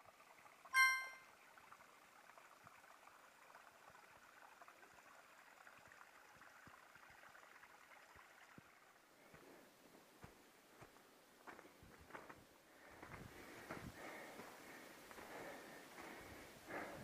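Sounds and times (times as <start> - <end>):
faint outdoor hiss: 5.4 - 17.0.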